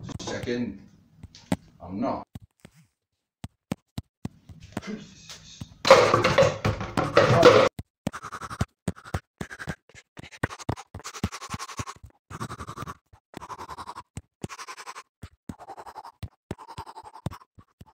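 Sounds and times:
scratching noise bursts: 0:05.7 - 0:17.9.

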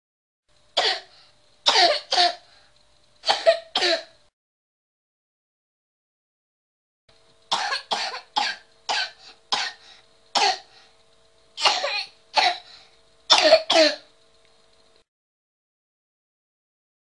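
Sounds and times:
child's barking cough: 0:00.8 - 0:01.1, 0:01.7 - 0:02.4, 0:03.2 - 0:04.1, 0:07.6 - 0:09.8, 0:10.4 - 0:10.7, 0:11.6 - 0:12.7, 0:13.3 - 0:14.1.

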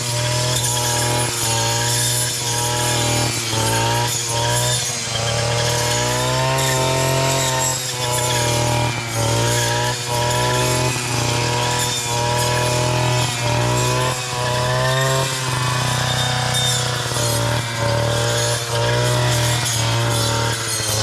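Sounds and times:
brushcutter cutting brush: 0:00.0 - 0:21.0.

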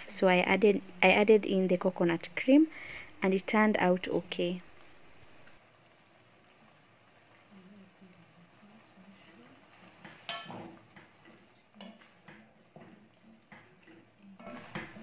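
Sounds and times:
spoon knocking metal pot: 0:10.0 - 0:11.2.

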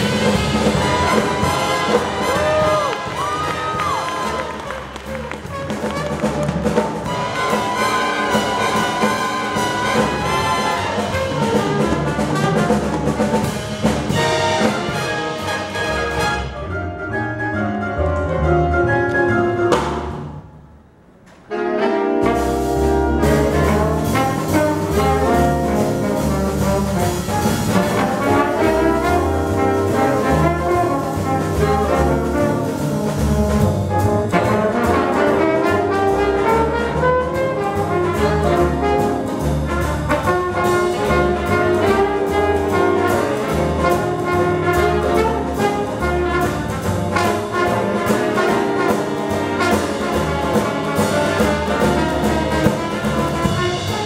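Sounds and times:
jazz big band playing: 0:00.0 - 0:54.0.

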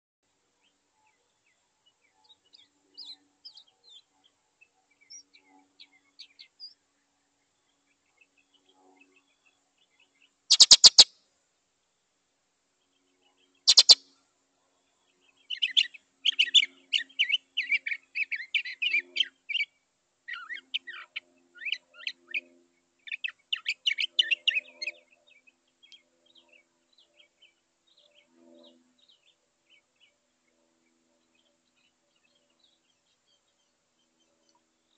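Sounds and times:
faint bird chirps: 0:00.6 - 0:11.1, 0:12.9 - 0:14.2, 0:14.9 - 0:34.9
mockingbird singing: 0:10.5 - 0:11.1, 0:13.7 - 0:14.0
short harsh calls: 0:10.5 - 0:11.1, 0:13.7 - 0:14.0.

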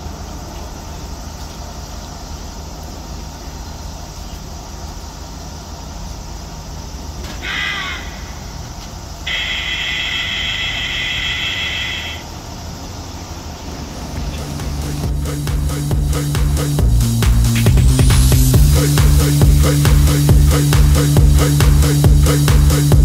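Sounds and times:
car road and engine noise: 0:00.0 - 0:23.0
steady high tone: 0:07.3 - 0:12.4.

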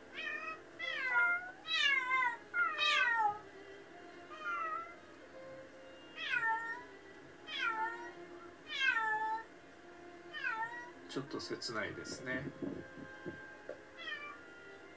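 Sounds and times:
cat meowing: 0:00.1 - 0:03.4, 0:04.3 - 0:05.0, 0:06.1 - 0:06.9, 0:07.5 - 0:09.5, 0:10.3 - 0:11.0, 0:14.0 - 0:14.5.

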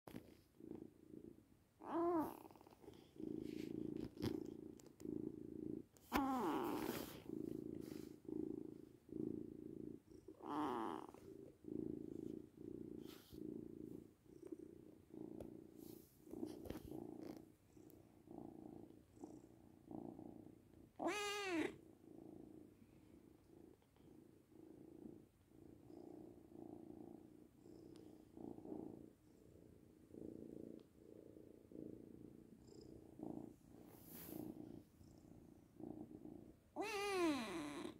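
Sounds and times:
kitten purring: 0:00.1 - 0:37.9
kitten meowing: 0:21.0 - 0:21.7, 0:36.8 - 0:37.9.

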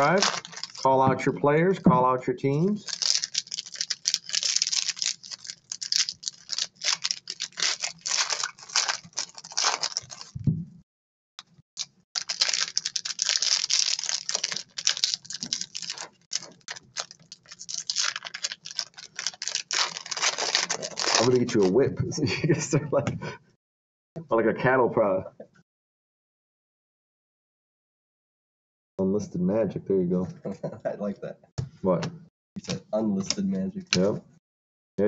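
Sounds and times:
foil packs crinkling: 0:00.0 - 0:00.9, 0:02.8 - 0:10.4, 0:12.2 - 0:21.8.

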